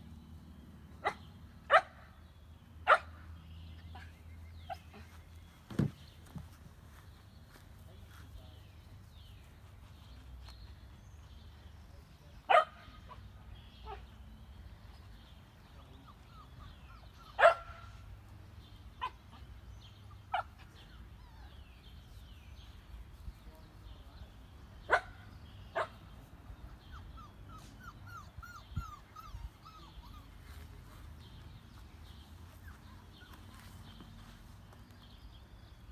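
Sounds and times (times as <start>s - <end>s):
puppies yipping: 15.8s - 17.8s, 26.8s - 31.1s, 32.2s - 34.0s.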